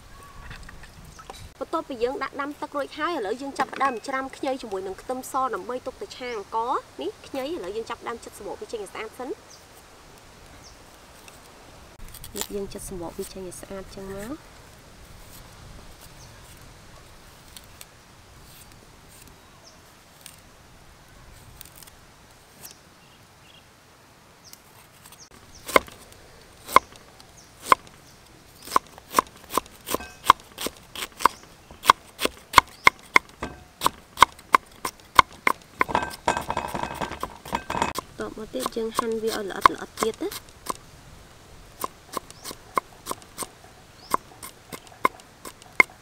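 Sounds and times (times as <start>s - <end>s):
knife chopping on wooden board: 25.7s - 25.9s, 28.7s - 38.0s.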